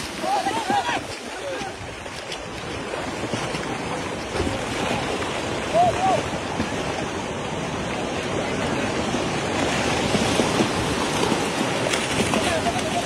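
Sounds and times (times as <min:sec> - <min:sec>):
shallow water splashing and churning: 0:00.0 - 0:13.0.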